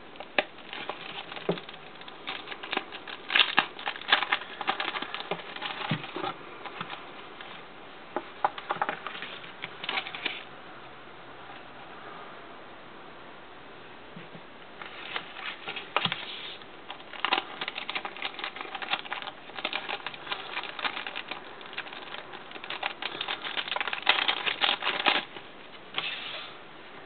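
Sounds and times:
plastic packaging crinkling: 0.2 - 7.6, 14.9 - 26.1.

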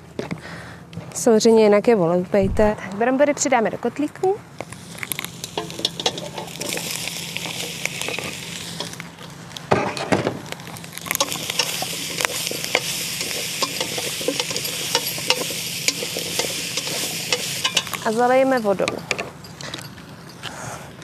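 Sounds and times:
wood fire crackling: 4.5 - 20.7
food sizzling in a pot: 4.6 - 19.2
spoon stirring: 5.5 - 6.9, 11.1 - 19.6.

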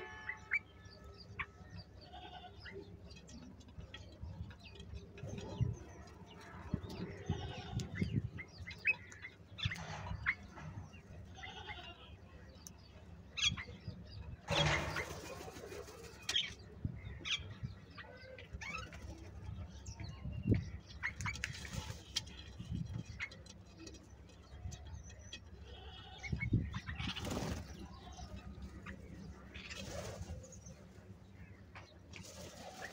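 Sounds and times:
wings flapping: 14.5 - 16.2, 27.0 - 27.8.

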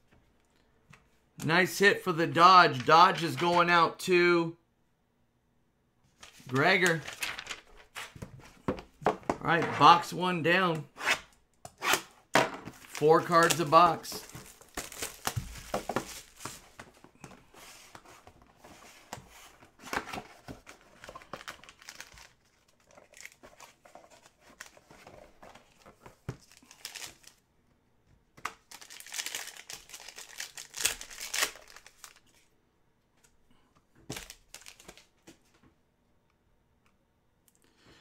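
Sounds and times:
packaging rustling and crinkling: 6.2 - 8.5, 12.7 - 27.4, 28.6 - 32.4, 34.1 - 35.1.

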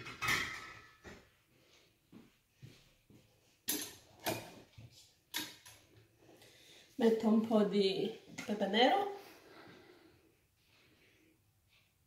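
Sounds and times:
pots and utensils clattering: 0.0 - 1.3, 3.7 - 4.6.

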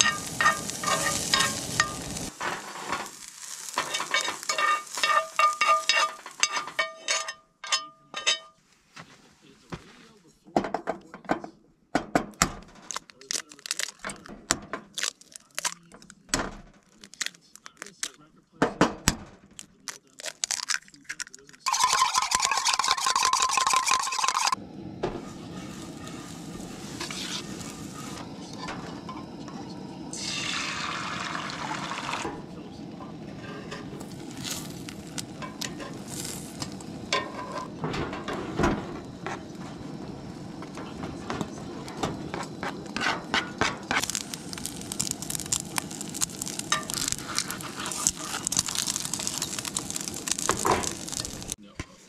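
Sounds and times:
camp stove hissing: 0.0 - 7.3, 21.7 - 51.6
eggs sizzling in hot pan: 0.0 - 7.3, 21.6 - 51.6
metal spork scraping a skillet: 0.0 - 8.5, 21.6 - 24.6, 25.2 - 29.2, 33.4 - 38.4, 42.0 - 51.5
whisking eggs in metal cup: 21.3 - 24.6, 42.3 - 51.6.

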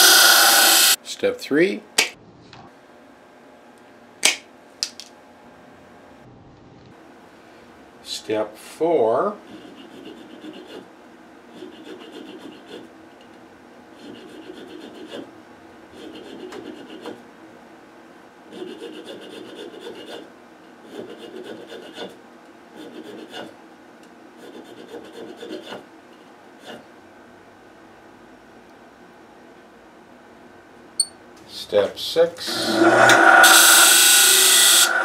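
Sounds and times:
hand file rasping on metal: 9.4 - 10.9, 11.5 - 12.9, 14.0 - 15.3, 15.9 - 17.2, 18.5 - 22.2, 22.8 - 23.6, 24.4 - 25.9.

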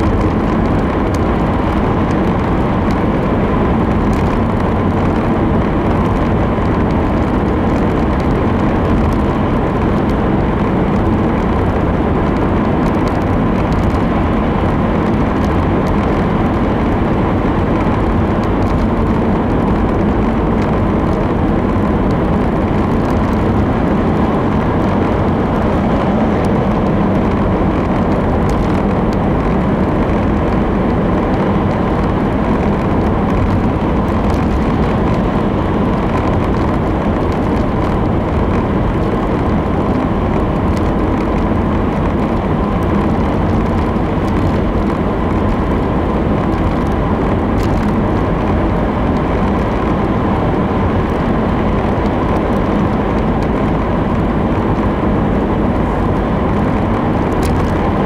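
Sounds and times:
tyre and engine noise in cabin: 0.0 - 58.0.

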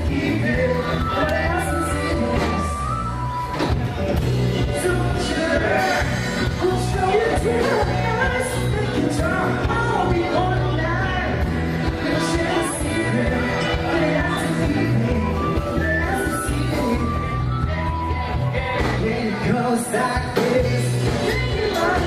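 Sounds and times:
lead singer singing: 0.0 - 3.8, 4.5 - 22.0
live pop-rock band playing: 0.0 - 22.0.

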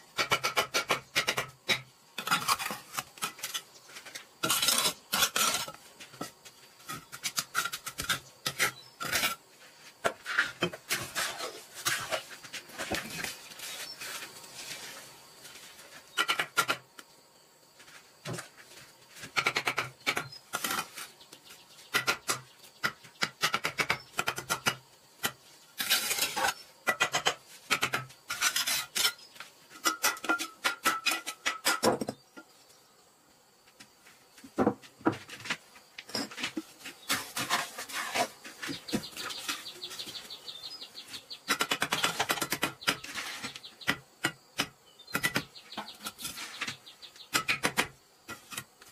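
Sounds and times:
trowel scraping mortar on bricks: 0.2 - 9.4, 10.0 - 15.0, 25.2 - 32.2, 35.1 - 40.2, 41.1 - 48.9.

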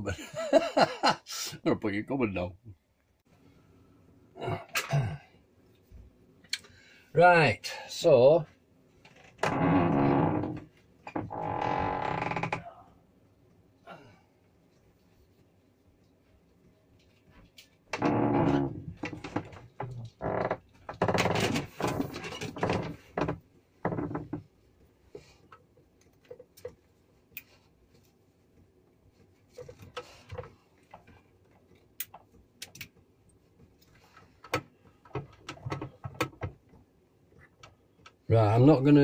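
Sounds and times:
cables rustling and scraping: 14.4 - 38.7
small clicks and knocks: 19.0 - 28.0, 29.5 - 38.3.

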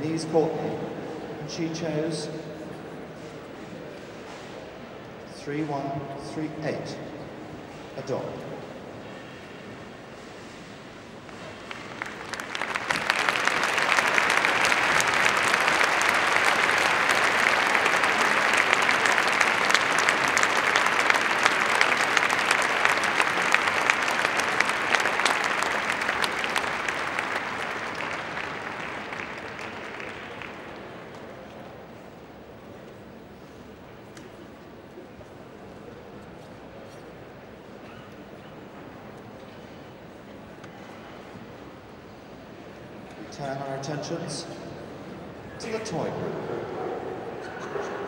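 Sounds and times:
crowd applauding: 11.2 - 32.9.

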